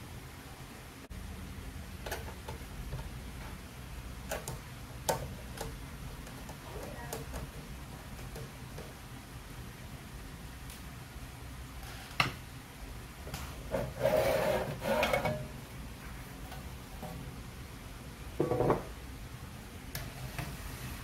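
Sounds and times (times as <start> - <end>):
metal scraping on metal: 13.7 - 15.6.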